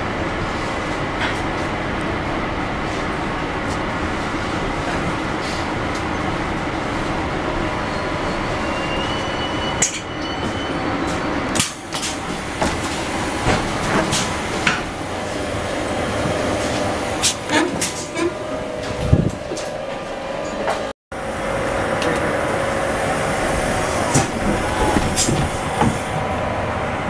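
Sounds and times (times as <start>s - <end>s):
train running noise: 0.0s - 27.0s
faint high squeal: 7.8s - 11.2s
train door clicks and clunks: 9.8s - 15.0s, 16.2s - 20.9s, 24.0s - 26.2s
door sliding open: 23.3s - 26.2s.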